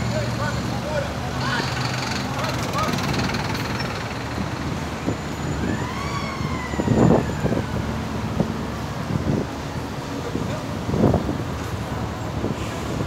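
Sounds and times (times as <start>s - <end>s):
rushing background noise: 0.0s - 13.0s
siren wailing: 4.9s - 8.6s.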